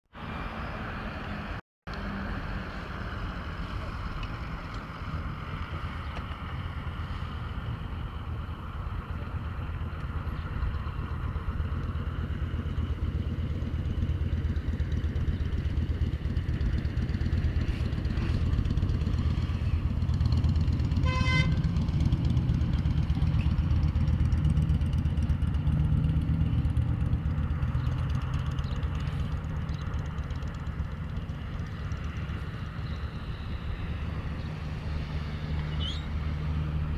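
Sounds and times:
road traffic rumbling: 0.1s - 36.9s
car horn toot: 21.0s - 21.7s.

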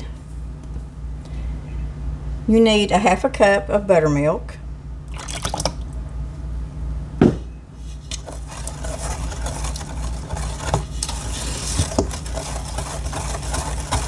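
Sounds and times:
steady low hum: 0.0s - 14.0s
liquid pouring into a bowl: 5.1s - 5.9s
knock: 7.2s - 7.4s
spatula stirring batter in a bowl: 7.8s - 14.0s.

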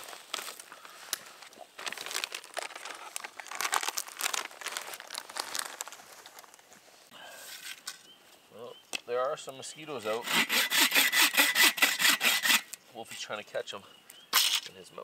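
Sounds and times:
packaging crinkling: 0.0s - 6.7s.

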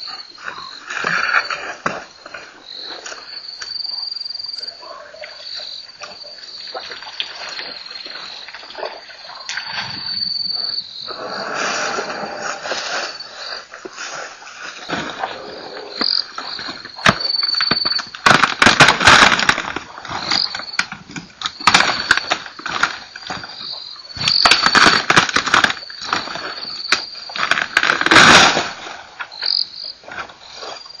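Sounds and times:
insects trilling: 0.0s - 31.0s
rustling crackling bursts: 16.0s - 29.4s.

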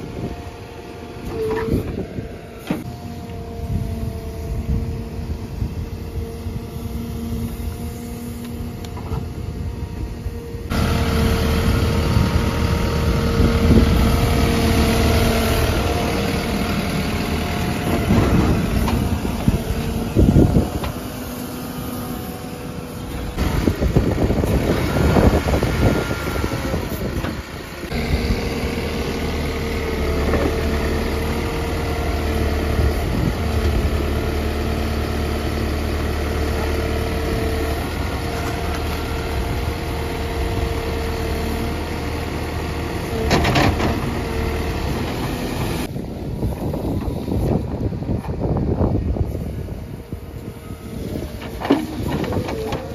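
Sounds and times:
diesel engine running: 0.0s - 52.9s.

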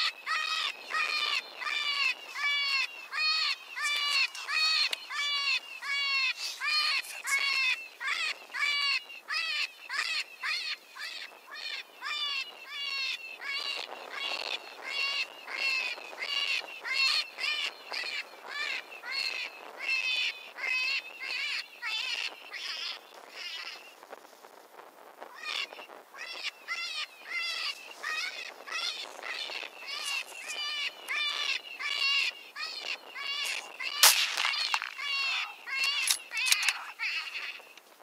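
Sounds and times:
electronic rabbit distress call: 26.2s - 37.6s.

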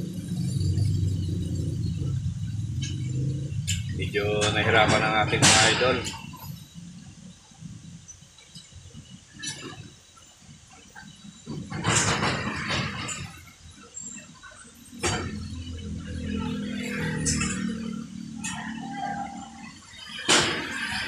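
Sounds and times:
truck engine idling: 0.0s - 8.5s
sharp metal clank: 3.7s - 6.4s.

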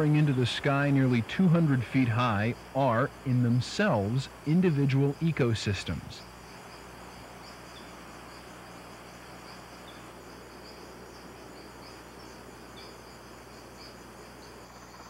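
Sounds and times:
insects chirring: 0.0s - 15.0s
low electrical hum: 0.0s - 15.0s.

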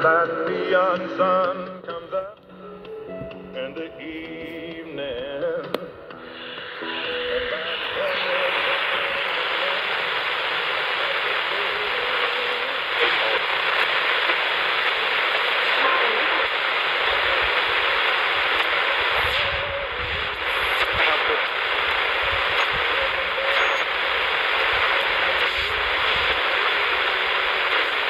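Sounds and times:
radio static hiss: 3.7s - 28.0s.

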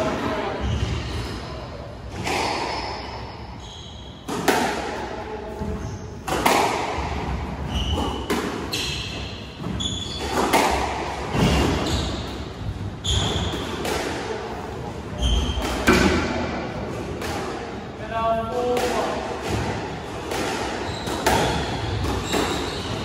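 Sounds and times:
squash ball hits echoing: 2.1s - 3.2s, 4.2s - 14.5s, 15.1s - 17.8s, 18.5s - 23.0s
shoes squeaking on floor: 3.6s - 4.3s, 7.6s - 13.6s, 15.1s - 15.9s, 20.8s - 23.0s.

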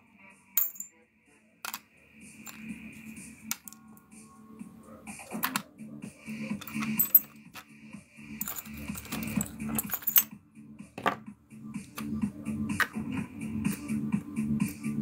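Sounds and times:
background music with steady beat: 0.0s - 15.0s
small metal tools clicking and rattling: 6.5s - 7.7s, 8.4s - 10.4s.

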